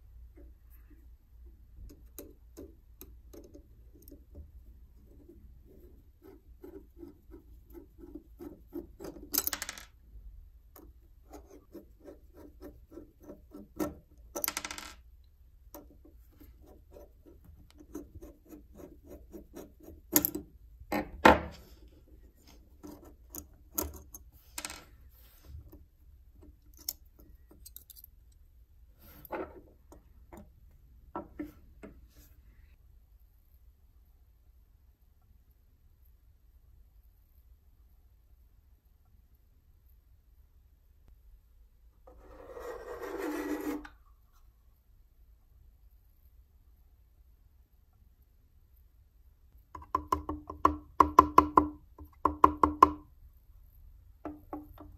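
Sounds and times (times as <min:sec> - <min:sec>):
metal parts clinking on wood: 0:26.8 - 0:28.1.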